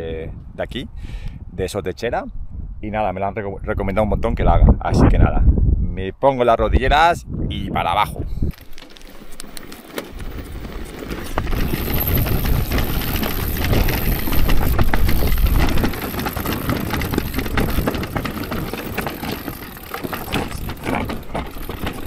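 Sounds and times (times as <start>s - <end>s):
bike rattling and knocking: 8.5s - 22.0s
tyres crunching over stones: 8.5s - 22.0s.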